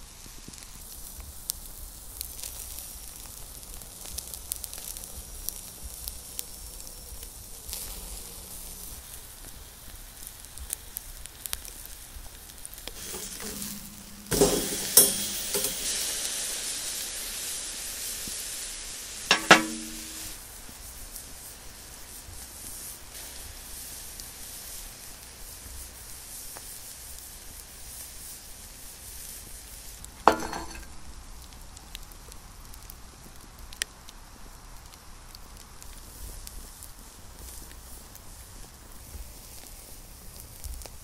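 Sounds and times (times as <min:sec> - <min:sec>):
fire crackling: 0:00.0 - 0:41.0
steak sizzling on grill: 0:00.0 - 0:41.0
metallic clank: 0:13.0 - 0:16.0, 0:19.3 - 0:20.4, 0:30.3 - 0:30.9.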